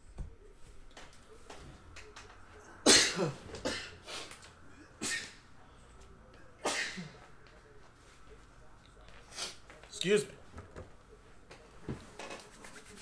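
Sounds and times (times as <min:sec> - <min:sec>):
man sneezing: 0:02.8 - 0:04.3.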